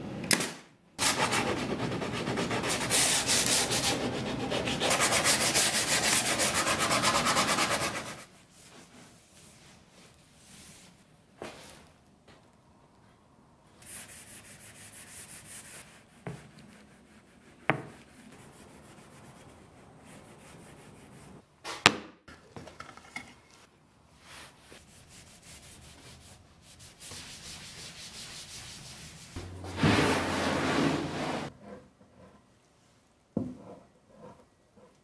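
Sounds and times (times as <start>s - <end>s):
cloth rubbing on wood: 24.2s - 31.5s.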